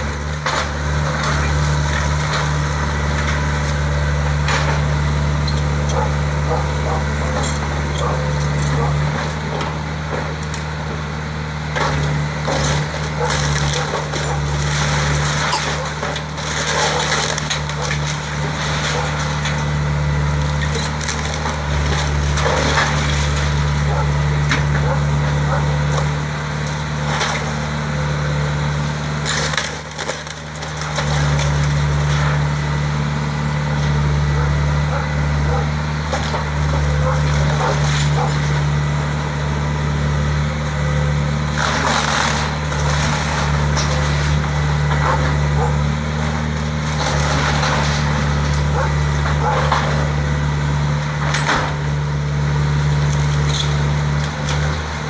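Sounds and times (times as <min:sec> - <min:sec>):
wood splintering and cracking: 0:00.0 - 0:11.0, 0:11.6 - 0:55.0
excavator diesel engine running: 0:00.0 - 0:55.0
crashes of falling debris: 0:12.5 - 0:19.8, 0:20.4 - 0:23.9, 0:29.2 - 0:32.4, 0:41.5 - 0:45.2, 0:46.6 - 0:50.0.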